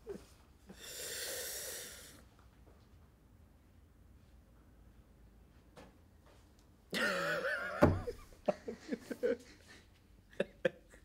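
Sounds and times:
man laughing: 0:06.9 - 0:11.0
soft thump: 0:07.8 - 0:08.2.

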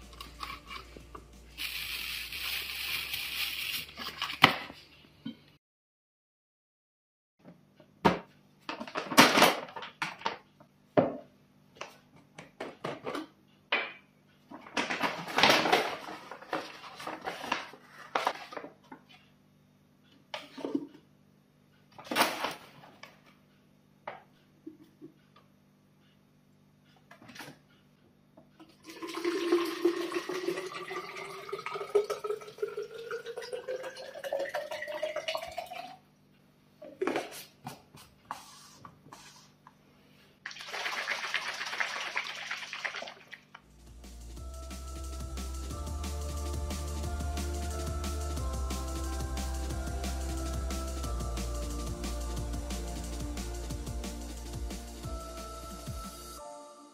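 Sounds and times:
water pouring into plastic bottle: 0:28.8 - 0:35.8, 0:40.5 - 0:43.4.

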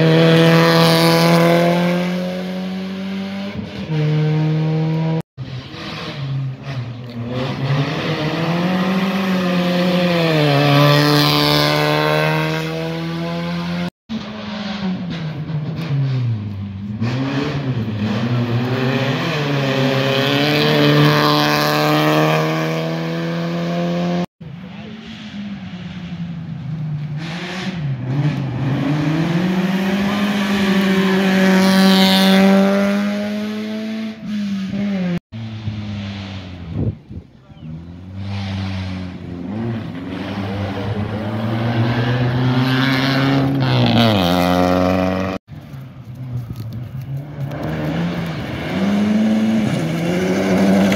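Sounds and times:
rally car engine revving: 0:00.0 - 0:45.4, 0:46.1 - 0:50.9
rally car engine accelerating past: 0:37.7 - 0:45.4, 0:47.3 - 0:50.9
tyres on gravel: 0:43.7 - 0:50.9.

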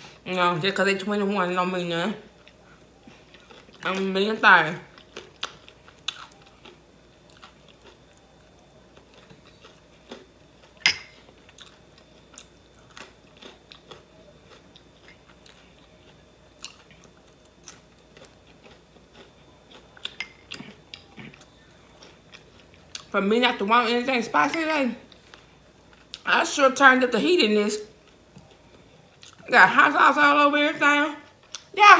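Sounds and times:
chewing and biting fries: 0:02.3 - 0:04.1, 0:04.8 - 0:23.1.

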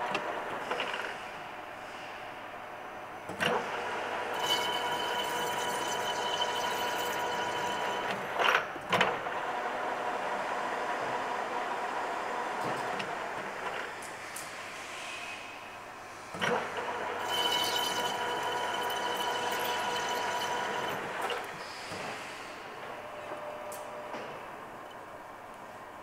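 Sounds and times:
metal lathe running: 0:03.7 - 0:09.9, 0:16.4 - 0:25.1.

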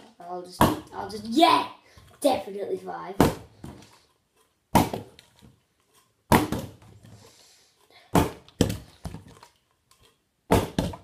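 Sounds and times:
plastic bottle thudding on floor: 0:06.3 - 0:06.9, 0:08.1 - 0:09.4, 0:10.5 - 0:11.0.

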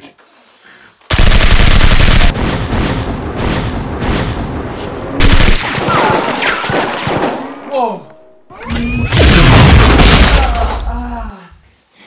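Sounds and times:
rapid automatic gunfire: 0:01.1 - 0:02.9, 0:05.2 - 0:06.0.

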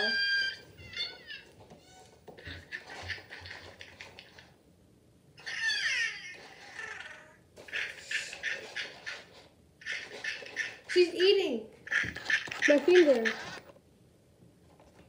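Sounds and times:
toy owl electronic warbling cry: 0:00.0 - 0:02.8, 0:05.4 - 0:09.2, 0:11.9 - 0:13.6.

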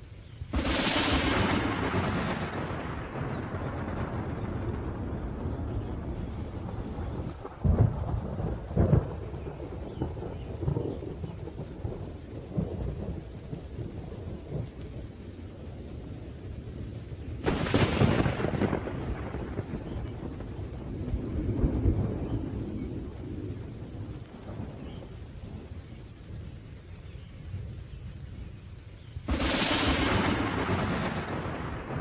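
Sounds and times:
rain hiss: 0:00.0 - 0:32.0
sharp thunderclap: 0:00.5 - 0:14.7, 0:17.4 - 0:25.2, 0:29.2 - 0:32.0
rolling thunder: 0:00.5 - 0:16.8, 0:17.4 - 0:26.5, 0:29.1 - 0:32.0.

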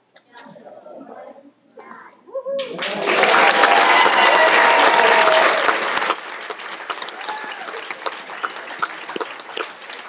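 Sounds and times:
audience applauding: 0:02.6 - 0:10.0.

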